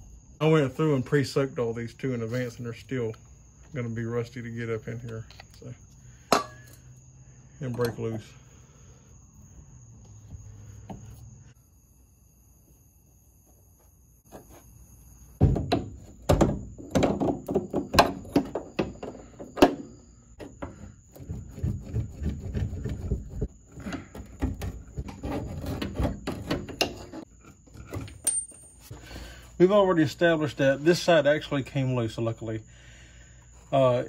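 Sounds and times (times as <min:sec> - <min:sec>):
loud metal thunks: 0:15.4 - 0:18.6.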